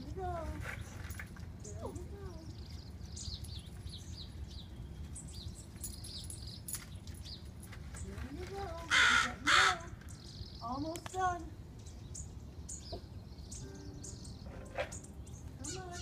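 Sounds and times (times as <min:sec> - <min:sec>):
small birds chirping: 0:00.0 - 0:16.0
crow cawing: 0:08.9 - 0:10.0.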